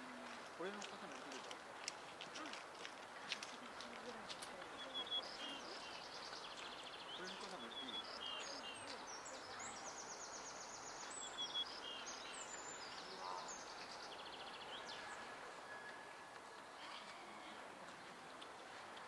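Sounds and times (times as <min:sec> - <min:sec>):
small birds chirping and trilling: 0:04.6 - 0:15.4.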